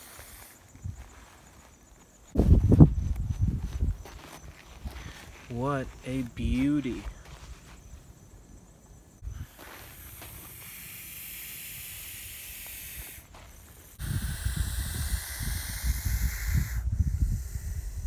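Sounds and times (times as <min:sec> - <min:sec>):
snake hissing: 0:00.0 - 0:00.7, 0:09.2 - 0:18.0
low rumble on microphone: 0:02.4 - 0:04.1.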